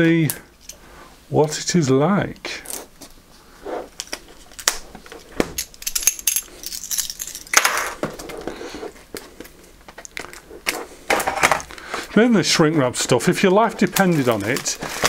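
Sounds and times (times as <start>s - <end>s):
plastic wrap crackling: 13.3s - 15.0s
loud plastic rustle: 13.8s - 15.0s.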